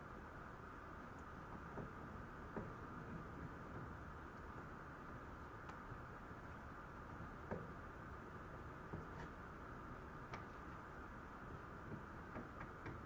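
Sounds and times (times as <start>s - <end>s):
steady low hiss: 0.0s - 13.0s
faint clicks and taps: 1.1s - 4.7s, 5.5s - 6.6s, 7.2s - 7.8s, 8.8s - 9.4s, 10.2s - 13.0s.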